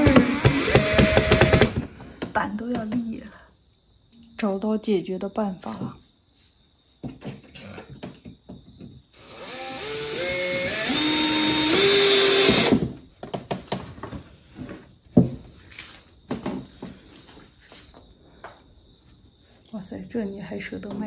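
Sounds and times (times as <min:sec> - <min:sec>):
electric drill running: 0:00.0 - 0:01.8, 0:09.2 - 0:12.9.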